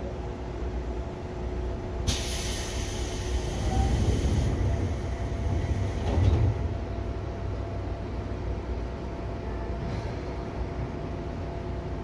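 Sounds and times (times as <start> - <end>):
electric train rumbling on track: 0.0 - 12.0
sharp hiss: 2.1 - 5.2.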